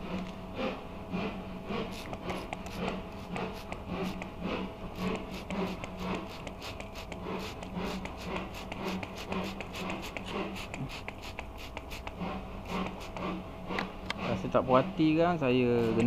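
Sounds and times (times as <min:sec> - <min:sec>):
spray bottle squirting: 0:01.9 - 0:04.3, 0:05.0 - 0:13.2.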